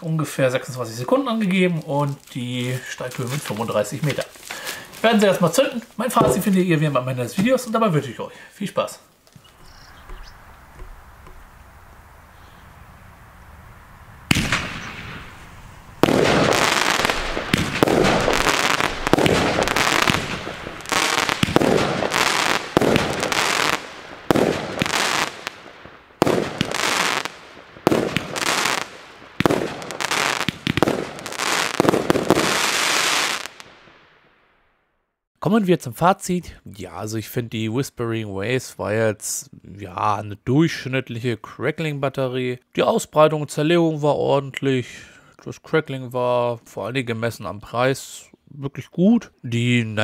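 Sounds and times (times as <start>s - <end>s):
crackling star bursts: 1.3s - 6.8s, 9.1s - 35.0s
fireworks shots: 6.1s - 6.8s, 14.2s - 34.4s.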